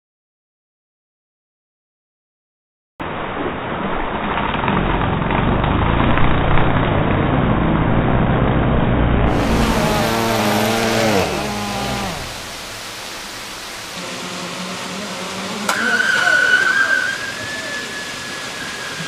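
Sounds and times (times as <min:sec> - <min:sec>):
drone propellers whirring: 0:07.8 - 0:13.2.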